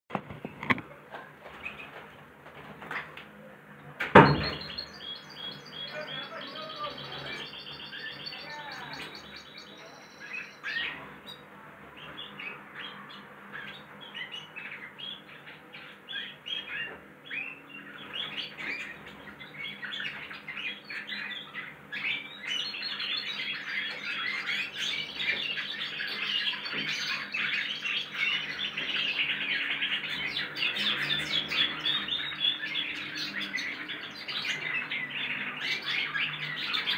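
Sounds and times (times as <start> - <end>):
sharp knock: 4.1 - 4.7
finches twittering: 4.3 - 11.4, 12.0 - 36.9.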